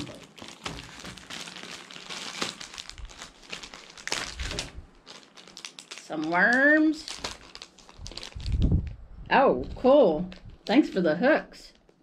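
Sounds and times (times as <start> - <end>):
plastic bag crinkling: 0.0 - 9.0
plastic packet crackling: 0.0 - 9.0.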